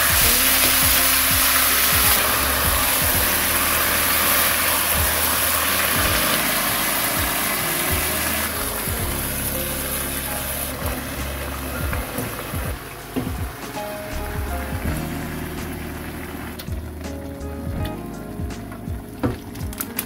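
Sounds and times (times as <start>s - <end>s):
food sizzling in a frying pan: 0.0s - 11.4s
steady low hum: 0.0s - 19.2s.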